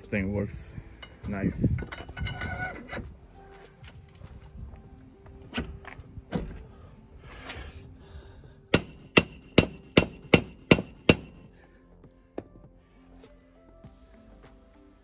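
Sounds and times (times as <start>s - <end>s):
hammer striking metal tool: 8.7s - 11.4s.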